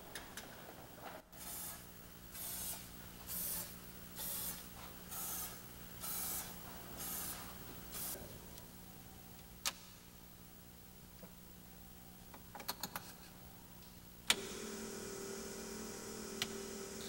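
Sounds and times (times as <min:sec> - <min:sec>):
faint steady low hum: 0:00.0 - 0:17.0
spray can hissing bursts: 0:02.4 - 0:07.4.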